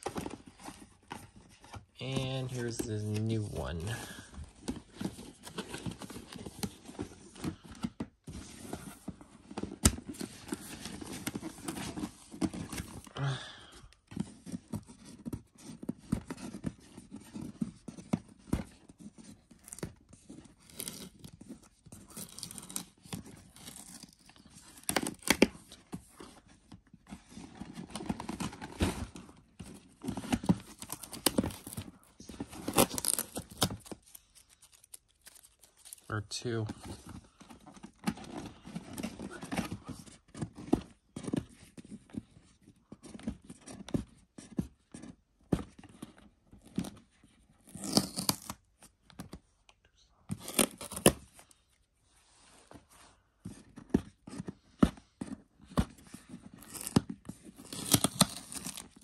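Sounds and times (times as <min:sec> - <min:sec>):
packing tape tearing: 0:30.2 - 0:31.9, 0:32.5 - 0:36.1, 0:47.6 - 0:48.6, 0:50.3 - 0:51.2, 0:56.5 - 0:59.0.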